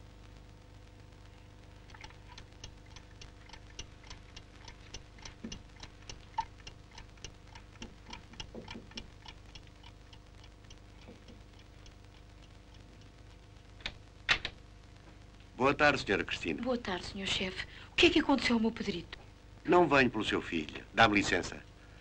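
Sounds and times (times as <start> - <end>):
clock ticking: 1.8 - 13.7.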